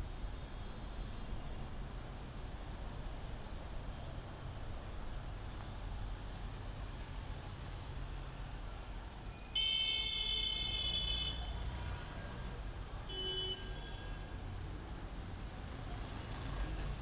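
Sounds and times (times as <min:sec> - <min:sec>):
low street hum: 0:00.0 - 0:17.0
vehicle horn blasts: 0:09.6 - 0:11.4, 0:13.1 - 0:14.2.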